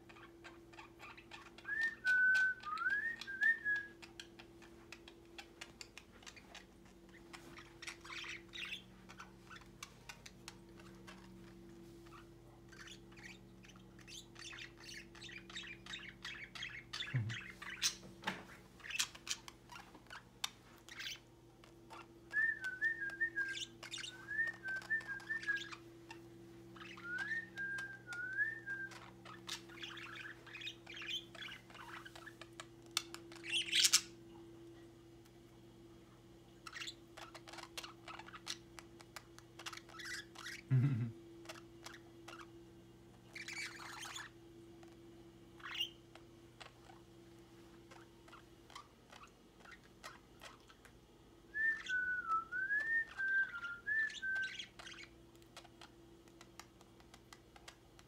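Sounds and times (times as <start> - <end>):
budgerigars chirping and chattering: 0.0 - 1.7, 3.9 - 18.1, 18.8 - 22.2, 23.5 - 27.6, 28.9 - 34.2, 36.6 - 40.7, 43.2 - 44.9, 45.6 - 47.0, 47.8 - 50.9, 53.1 - 58.0.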